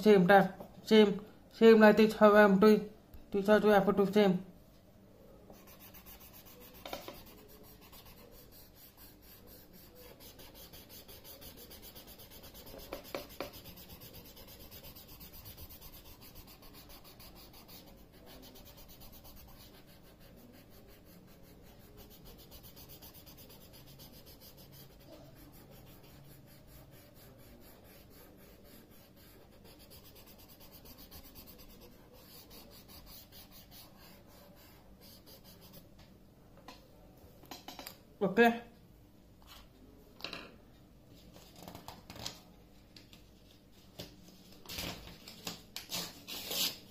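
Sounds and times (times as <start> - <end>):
pencil shading on paper: 5.5 - 35.9.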